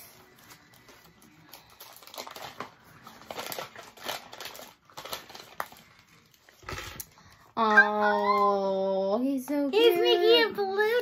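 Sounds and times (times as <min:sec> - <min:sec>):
wrapping crinkling: 0:00.0 - 0:07.5.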